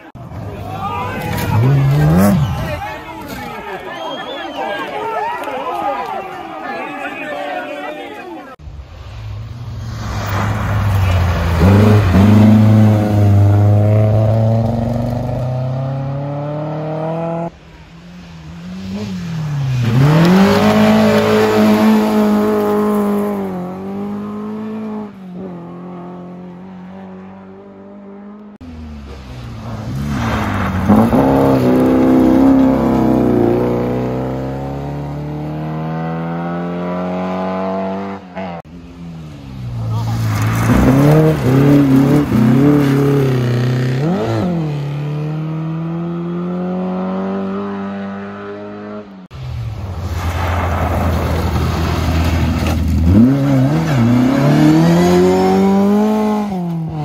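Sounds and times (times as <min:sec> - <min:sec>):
rally car engine revving: 0:01.2 - 0:02.8, 0:10.0 - 0:17.6, 0:18.2 - 0:28.6, 0:29.6 - 0:38.6, 0:39.7 - 0:49.1, 0:51.2 - 0:57.0.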